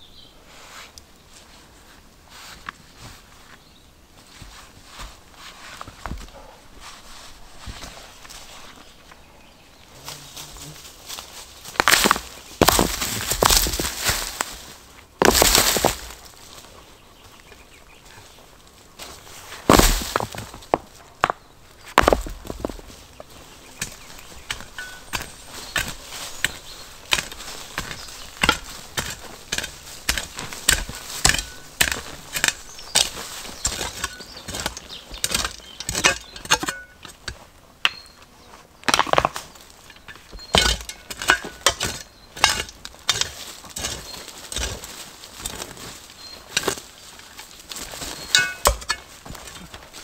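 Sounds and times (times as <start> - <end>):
rustling: 0.5 - 9.3, 9.9 - 50.0
knocks and cracks of wood: 11.7 - 14.6, 15.2 - 16.4, 19.6 - 23.0, 23.8 - 38.0, 38.8 - 50.0.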